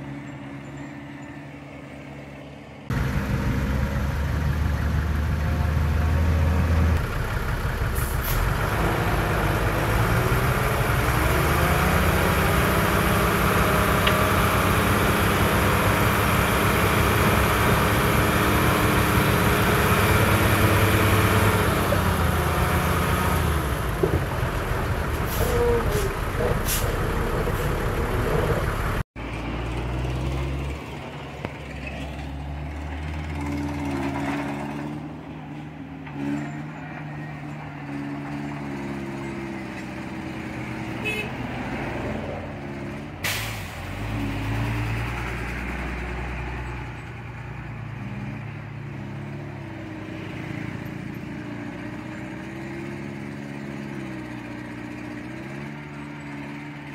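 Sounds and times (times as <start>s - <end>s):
quieter engine running: 0.2s - 29.0s
heavy diesel engine revving: 2.9s - 29.1s.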